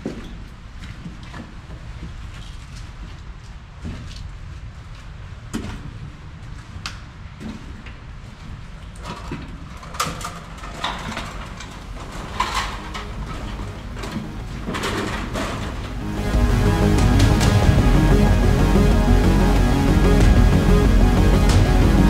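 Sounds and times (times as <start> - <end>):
steady low rumble: 11.9 - 22.0.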